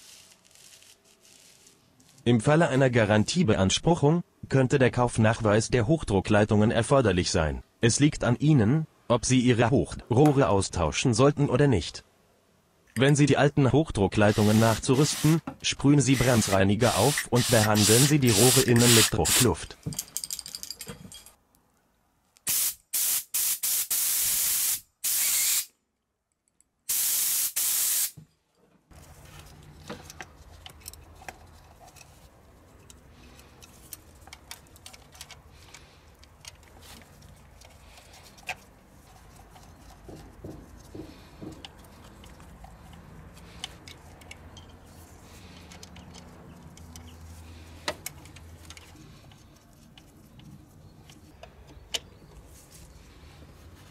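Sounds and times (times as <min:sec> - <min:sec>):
compressed air hissing blasts: 0:14.4 - 0:15.4, 0:16.2 - 0:19.5, 0:22.5 - 0:25.7, 0:26.9 - 0:28.2
hands handling fuel lines clicks: 0:29.6 - 0:52.5.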